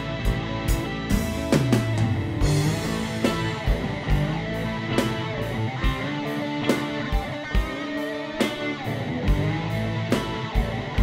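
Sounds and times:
guitar playing: 0:00.0 - 0:11.0
steady drum beat: 0:00.0 - 0:11.0
sharp drum hit: 0:01.3 - 0:04.4.

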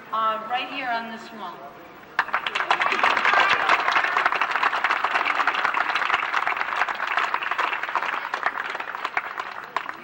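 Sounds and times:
crowd applause: 0:02.2 - 0:10.0.

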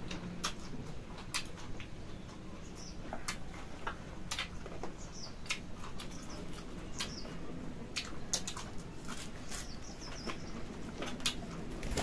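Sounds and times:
people chewing: 0:00.0 - 0:11.8
mouth clicks and smacks: 0:00.4 - 0:02.0, 0:03.1 - 0:04.6, 0:05.4 - 0:06.2.

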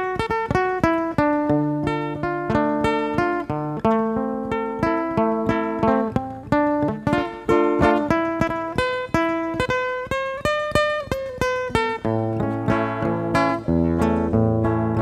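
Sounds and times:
acoustic guitar plucked melody: 0:00.0 - 0:15.0.

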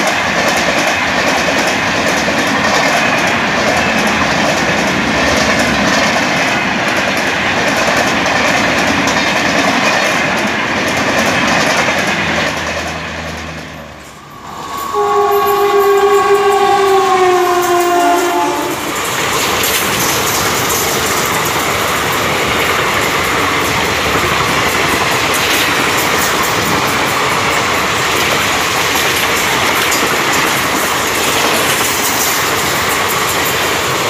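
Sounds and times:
wheels clicking over rail joints: 0:00.0 - 0:14.2, 0:18.8 - 0:34.0
train horn blast: 0:13.8 - 0:19.1.

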